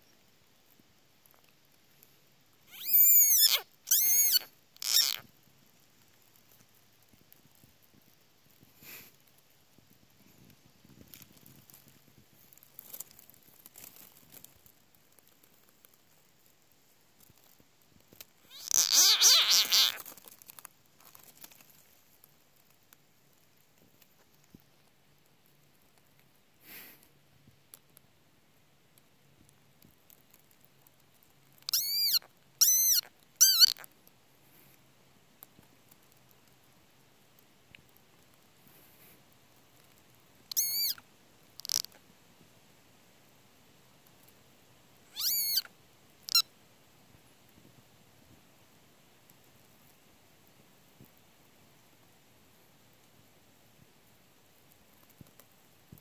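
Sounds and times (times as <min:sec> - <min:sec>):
frog screaming: 0:02.7 - 0:05.2, 0:18.5 - 0:20.0, 0:31.7 - 0:33.8, 0:40.5 - 0:41.0, 0:41.6 - 0:41.9, 0:45.1 - 0:45.7
dry leaves rustling and crackling: 0:10.6 - 0:18.6, 0:19.6 - 0:23.8.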